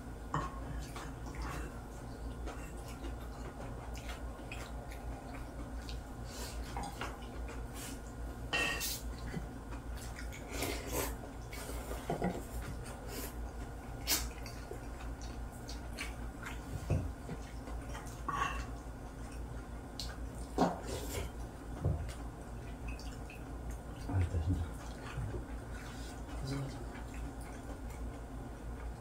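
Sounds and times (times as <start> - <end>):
steady low hum: 0.0 - 29.0
utensils clinking against plates: 8.5 - 9.0.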